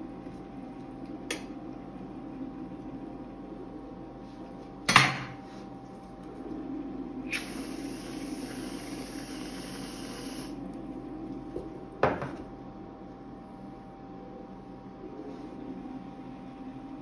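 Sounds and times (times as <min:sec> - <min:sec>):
aerosol can spraying hiss: 0:07.3 - 0:10.5.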